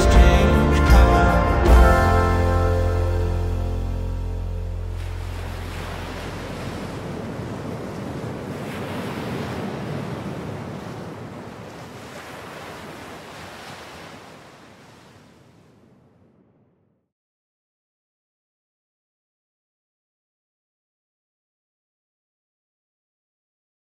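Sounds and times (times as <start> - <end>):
surf breaking on rocks: 4.9 - 15.7.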